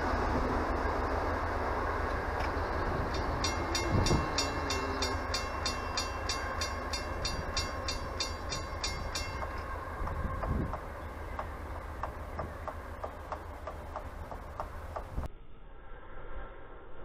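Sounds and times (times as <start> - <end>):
train rumbling: 0.0 - 15.3
crossing bell ringing: 2.2 - 13.6.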